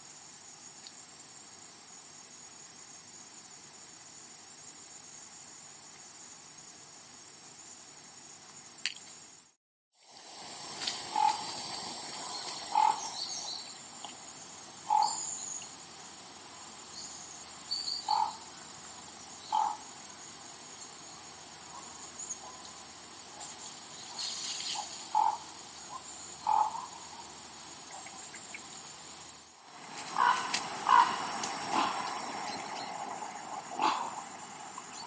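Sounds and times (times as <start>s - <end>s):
steady high hiss: 0.0s - 35.0s
short animal calls: 30.1s - 32.2s, 33.8s - 34.3s.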